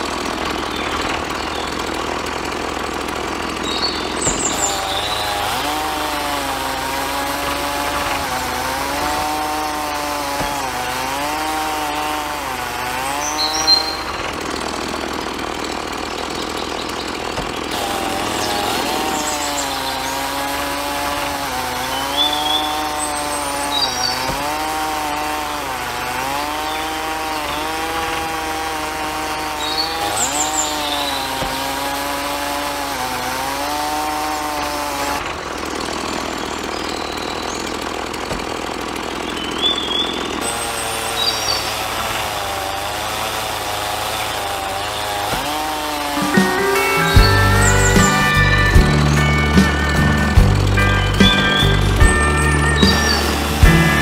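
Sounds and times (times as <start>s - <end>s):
small electric motor whining: 0.0s - 33.2s, 39.2s - 42.7s, 44.2s - 54.0s.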